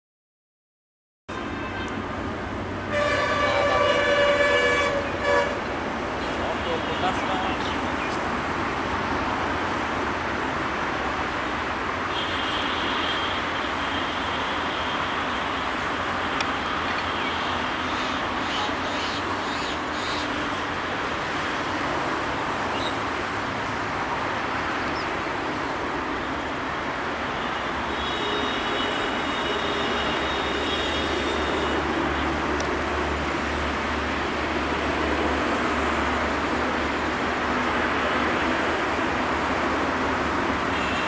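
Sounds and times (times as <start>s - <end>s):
train noisy roar: 2.1s - 11.2s.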